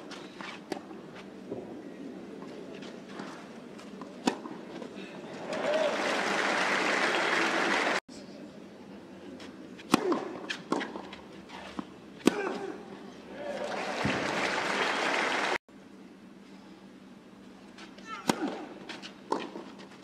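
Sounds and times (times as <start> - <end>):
tennis ball hits: 4.2 - 4.6, 9.8 - 12.8
crowd applause: 5.4 - 8.0, 13.4 - 15.6.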